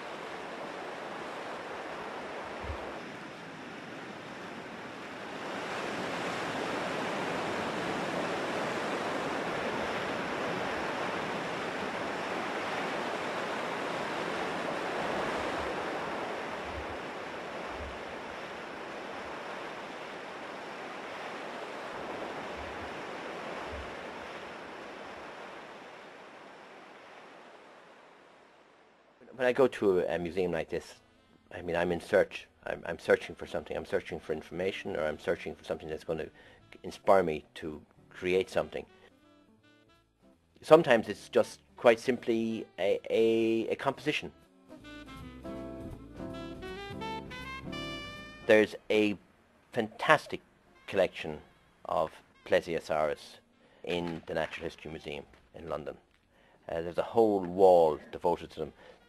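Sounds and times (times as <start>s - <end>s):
surf breaking on rocks: 0.0s - 28.5s, 53.9s - 55.8s.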